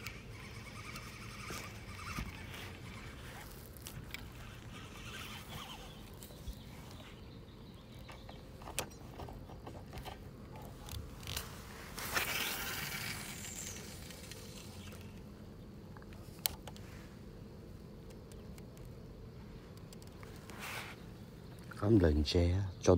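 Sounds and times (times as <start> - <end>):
spinning reel clicking: 0.0 - 3.0.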